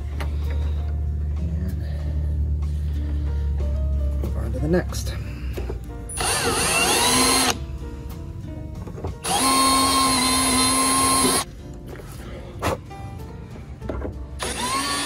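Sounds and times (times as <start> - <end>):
cordless drill spinning: 6.2 - 7.6, 9.2 - 11.4, 14.4 - 15.0.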